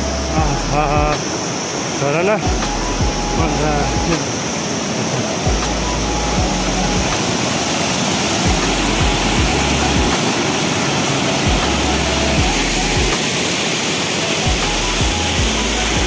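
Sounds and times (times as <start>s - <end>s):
mountain stream rushing: 0.0s - 16.0s
low rumble: 5.5s - 7.2s.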